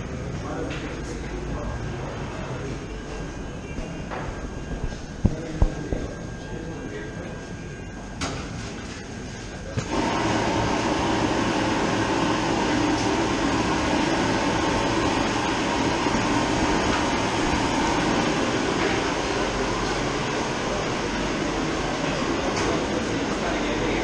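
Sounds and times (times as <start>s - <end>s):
steady rushing machine noise: 9.9s - 24.0s.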